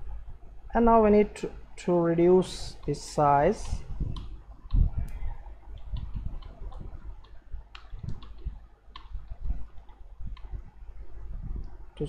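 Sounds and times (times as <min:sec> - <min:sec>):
computer keys and mouse clicks: 0:03.6 - 0:04.9, 0:05.7 - 0:10.6.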